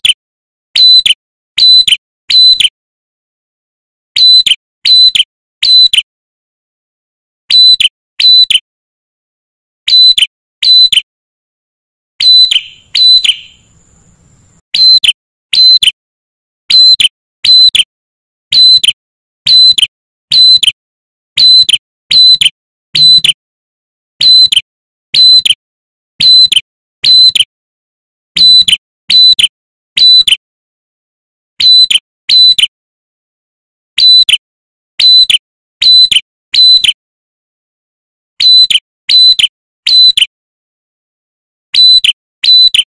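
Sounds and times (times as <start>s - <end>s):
bird calling sharp high note: 12.2s - 15.9s.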